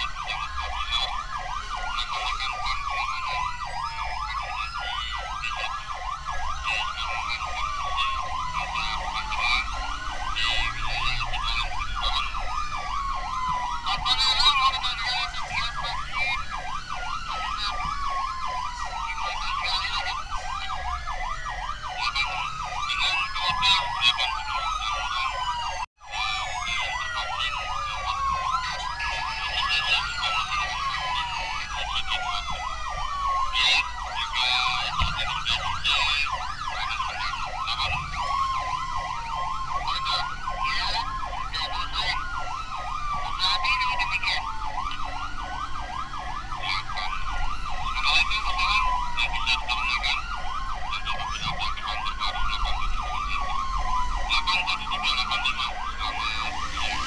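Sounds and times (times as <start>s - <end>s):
fast warbling siren tone: 0.0s - 57.0s
sirens wailing: 0.0s - 57.0s.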